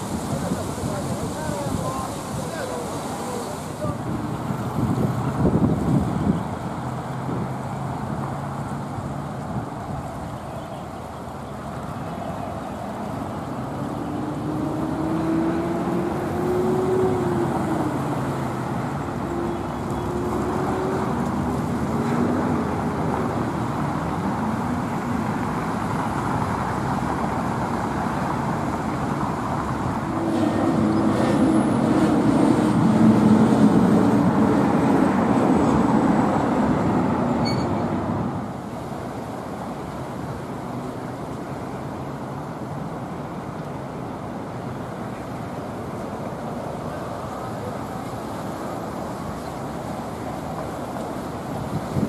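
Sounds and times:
cars driving past: 11.0s - 52.0s.

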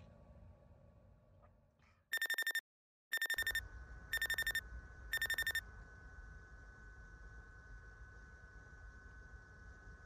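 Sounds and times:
electronic alarm beeping: 2.1s - 5.6s.

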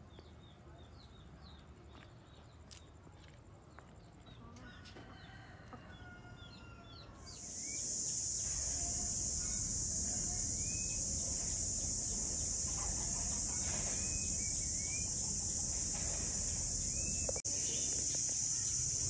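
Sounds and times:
high-pitched insect drone: 7.4s - 19.0s.

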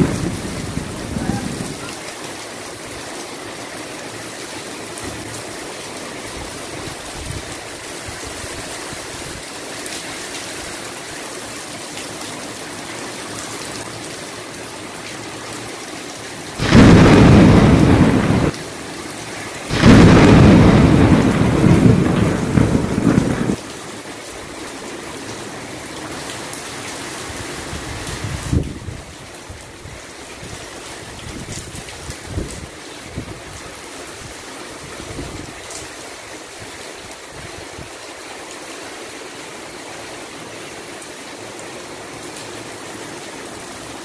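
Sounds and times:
heavy rain: 0.0s - 44.0s
loud thunder claps: 16.6s - 18.6s, 19.7s - 23.6s.

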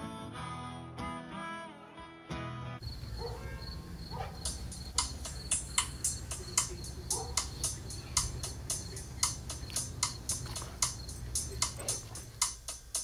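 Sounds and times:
insect high trill: 2.8s - 13.0s
insect sharp chirps: 2.8s - 13.0s.

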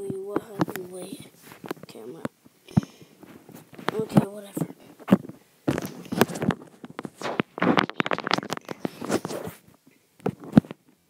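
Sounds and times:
camera handling rustling: 0.6s - 1.9s, 3.2s - 4.0s, 4.8s - 10.8s.

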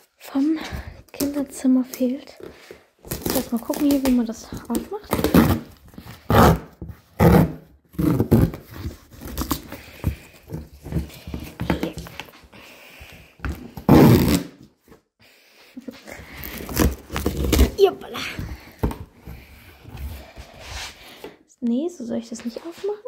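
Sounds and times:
cardboard box scraping and tearing: 3.1s - 12.2s, 16.3s - 18.9s.

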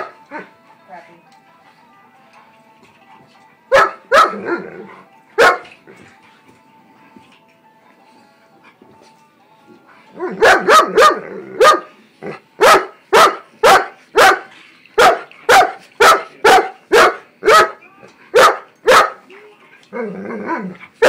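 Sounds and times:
dog barking: 3.7s - 4.6s, 5.4s - 5.7s, 10.2s - 11.9s, 12.6s - 19.2s.

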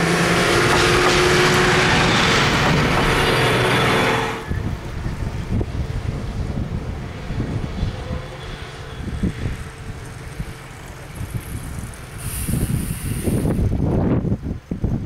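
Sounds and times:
diesel railcar rumbling: 0.0s - 15.0s
wind buffeting microphone: 4.4s - 15.0s
brief high hiss: 12.2s - 13.6s.

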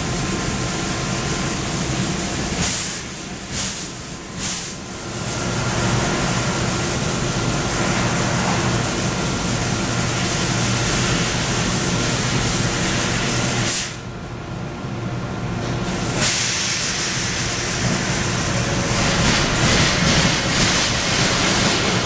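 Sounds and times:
machine hum: 17.2s - 22.0s.

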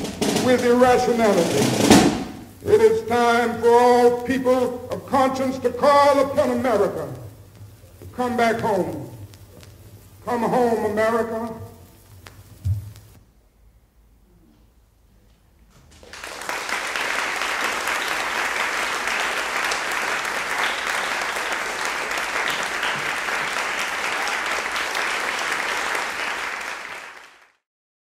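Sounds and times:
audience applauding: 15.9s - 27.6s.

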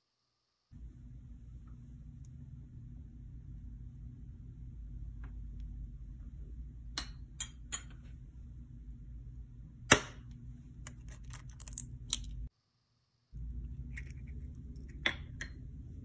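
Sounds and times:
low hum: 0.7s - 12.5s, 13.4s - 16.0s
egg cracking on metal bowl: 10.8s - 12.4s
eggshell crackling: 10.8s - 12.5s, 13.4s - 15.4s.

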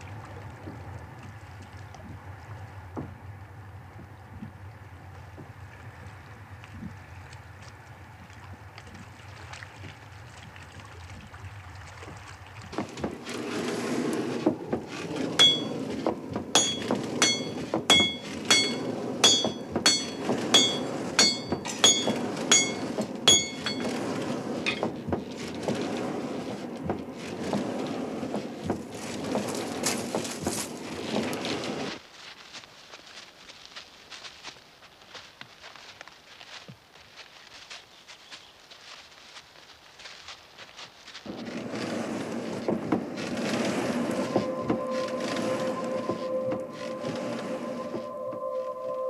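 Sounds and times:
steady rushing noise: 12.8s - 31.9s, 41.3s - 48.8s
hammer striking iron on anvil: 15.4s - 15.8s, 16.6s - 23.8s.

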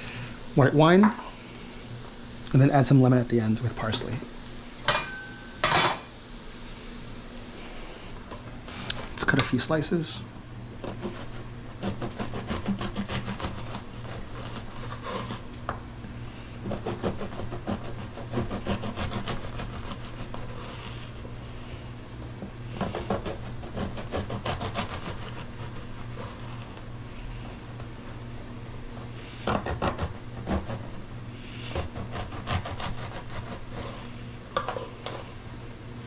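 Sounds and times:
bread knife sawing crusty loaf: 10.8s - 15.5s, 16.3s - 21.9s, 22.7s - 27.6s, 28.9s - 35.4s.

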